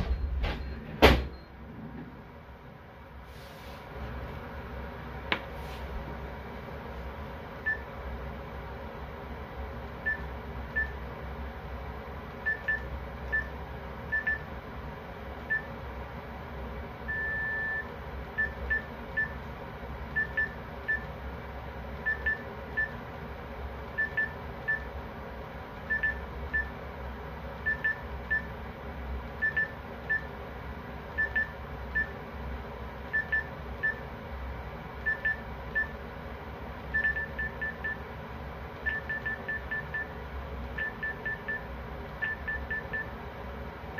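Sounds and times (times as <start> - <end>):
steady low hum: 0.0 - 43.9
electronic alarm beeping: 14.1 - 14.5, 17.1 - 19.4, 20.2 - 21.1, 24.0 - 24.9, 25.9 - 26.7, 29.4 - 30.3, 31.2 - 32.2, 33.1 - 34.0, 35.0 - 36.0, 36.9 - 38.0, 38.8 - 40.1, 40.8 - 43.1.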